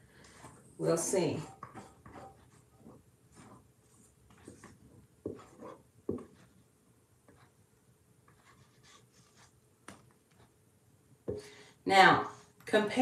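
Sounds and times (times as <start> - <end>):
spatula scraping a steel bowl: 0.3 - 3.6.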